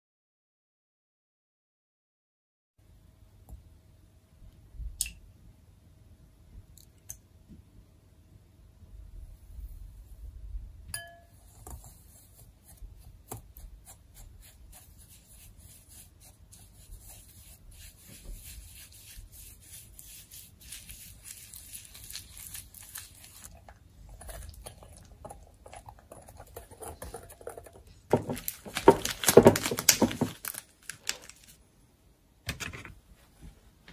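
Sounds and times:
glass clink: 10.9 - 11.4.

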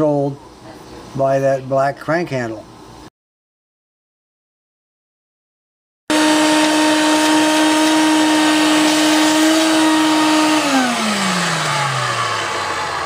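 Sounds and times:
shop vacuum running: 6.1 - 13.0
vacuum motor winding down: 6.1 - 13.0.

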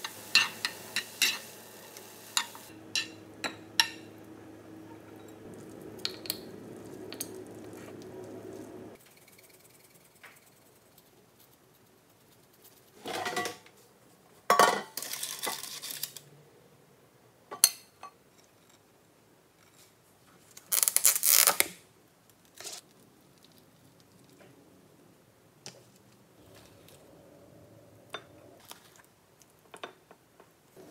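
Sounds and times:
spice shaker shaking: 5.6 - 13.0.

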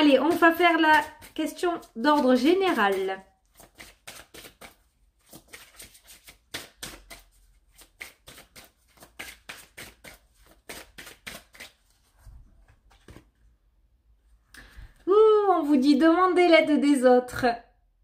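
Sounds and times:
cards being shuffled: 0.3 - 13.4.

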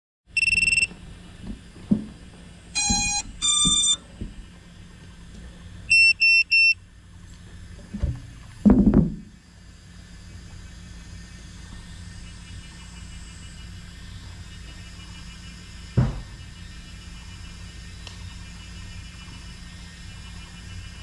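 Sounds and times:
short high electronic beeps: 0.4 - 0.9, 2.8 - 4.0, 5.9 - 6.8
longer buzzy electronic tones: 2.8 - 4.1
handling knocks: 7.8 - 9.3, 16.0 - 16.4
rustling thump: 7.8 - 9.3, 16.0 - 16.4.

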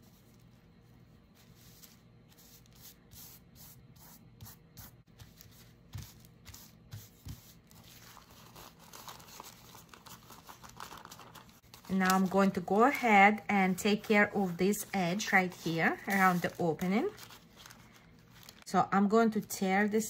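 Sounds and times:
paper napkin rustling: 5.1 - 18.7
paper crinkling: 7.3 - 13.0, 13.7 - 18.7.

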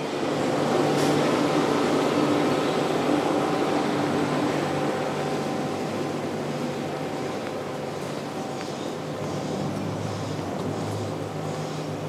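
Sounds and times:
industrial machinery drone: 0.0 - 12.0.

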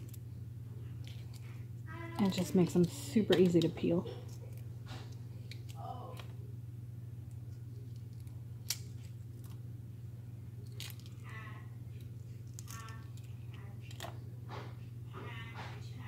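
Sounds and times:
egg shell crackling: 0.0 - 6.3, 7.2 - 9.8, 10.6 - 14.1
steady low hum: 0.0 - 16.0.

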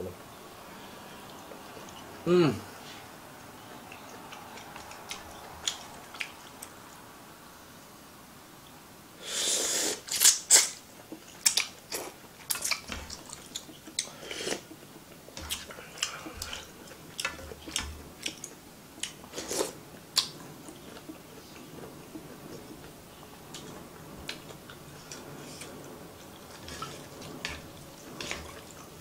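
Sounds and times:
wet chewing and lip-smacking: 3.3 - 7.0, 10.1 - 29.0
person slurping noodles: 9.2 - 10.8, 14.0 - 14.7, 19.3 - 19.8.

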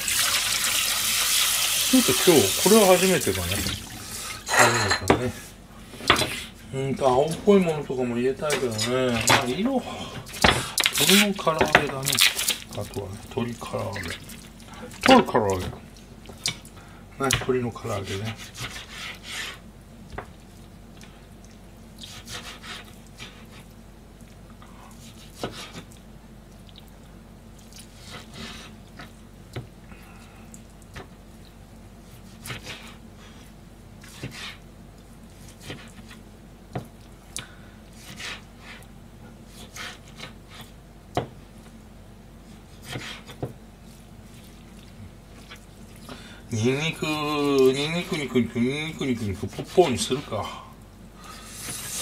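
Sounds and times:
knife tapping cutting board: 11.6 - 12.0
knife slicing meat: 17.9 - 19.6, 22.0 - 23.7, 25.0 - 25.9, 32.0 - 34.6, 35.3 - 36.2, 37.9 - 38.9, 39.5 - 40.8, 42.5 - 44.5, 49.1 - 50.3.

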